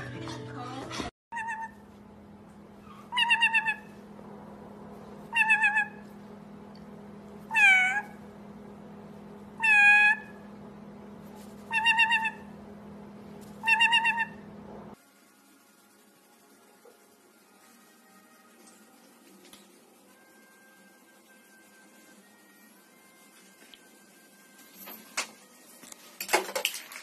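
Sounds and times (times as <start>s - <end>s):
parrot meow-like calls: 1.3s - 1.8s, 2.9s - 4.0s, 5.3s - 6.0s, 7.5s - 8.2s, 9.6s - 10.4s, 11.7s - 12.5s, 13.6s - 14.4s
low hum: 1.4s - 25.6s.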